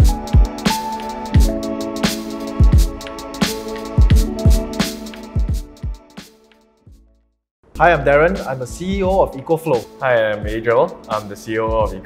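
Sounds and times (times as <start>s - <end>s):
electronic music: 0.0s - 6.4s
deep kick drums: 4.0s - 4.7s, 8.9s - 9.3s.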